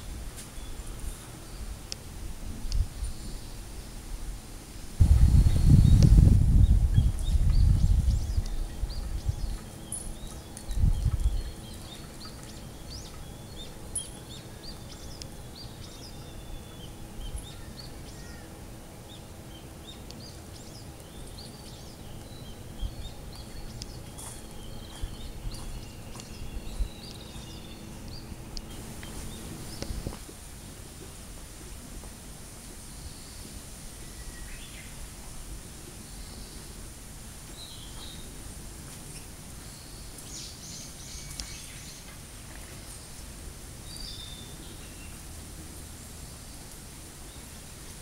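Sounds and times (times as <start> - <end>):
low rumble on microphone: 0.0 - 18.3
small birds chirping: 5.1 - 30.8, 32.9 - 35.1, 37.5 - 38.4, 39.1 - 48.0.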